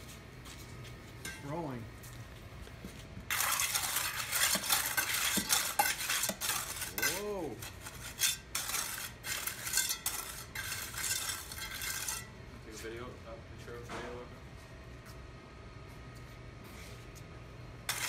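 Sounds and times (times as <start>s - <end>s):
trowel scraping wet concrete: 3.3s - 12.3s.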